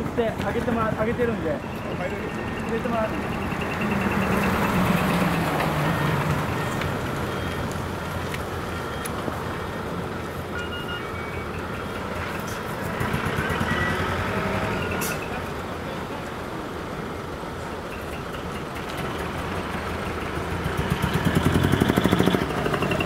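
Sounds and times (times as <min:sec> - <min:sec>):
diesel trucks driving past: 0:00.0 - 0:23.0.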